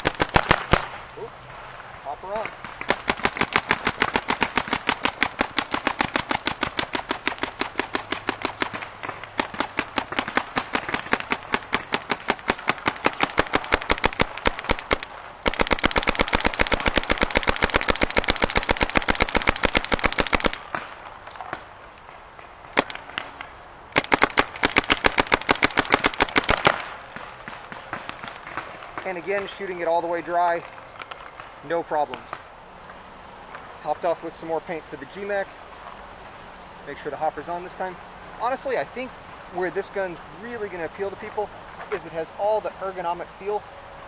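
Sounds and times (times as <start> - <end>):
paintball marker firing rapidly: 0.0 - 1.0, 2.4 - 20.9, 22.7 - 29.5.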